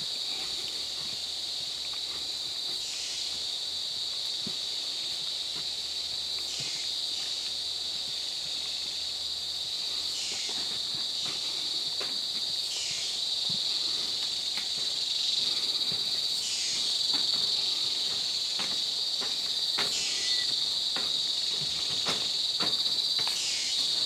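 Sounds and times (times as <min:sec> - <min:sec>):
footsteps on wooden boardwalk: 0:00.0 - 0:24.0
insects buzzing: 0:00.0 - 0:24.0.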